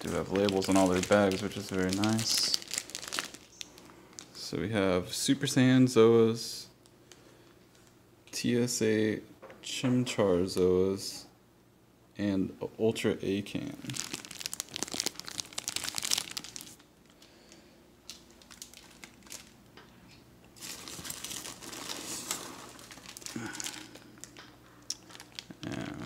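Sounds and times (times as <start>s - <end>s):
packing peanuts rustling: 0.0s - 4.4s, 13.7s - 19.6s, 20.6s - 26.0s
plastic bags crinkling: 0.0s - 4.4s, 13.7s - 19.8s, 20.6s - 26.0s.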